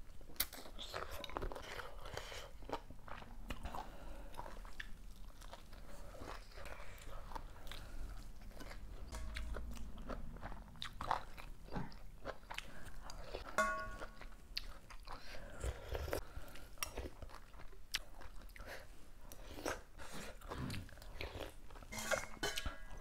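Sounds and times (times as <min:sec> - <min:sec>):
person chewing food: 0:00.0 - 0:23.0.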